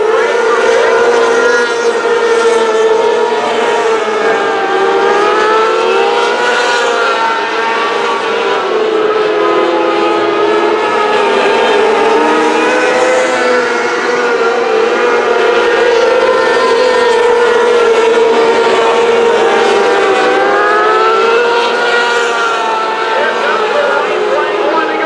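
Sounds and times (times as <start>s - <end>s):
racing car engines revving high: 0.0s - 25.0s.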